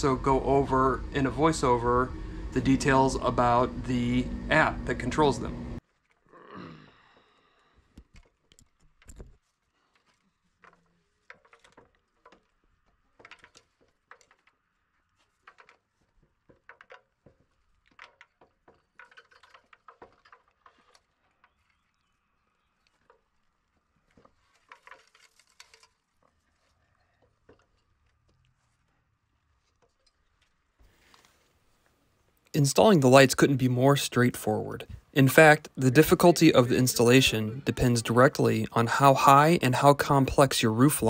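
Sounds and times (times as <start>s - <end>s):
person climbing aluminium ladder: 8.0s - 22.0s, 22.8s - 31.6s.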